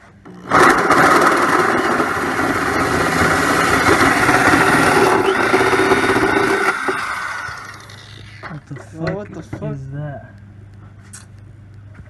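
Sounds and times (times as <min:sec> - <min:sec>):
electric drill cutting sheet metal: 0:00.4 - 0:08.4.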